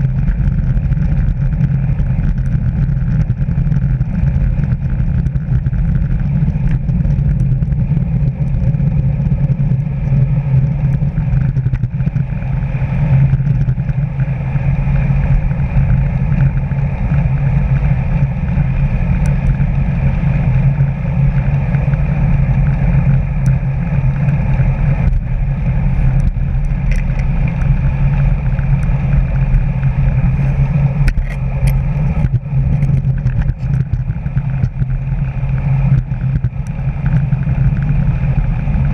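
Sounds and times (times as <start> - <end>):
wind and tyre noise: 0.0 - 38.9
faint clicks and rattles: 13.1 - 14.3, 15.2 - 38.9.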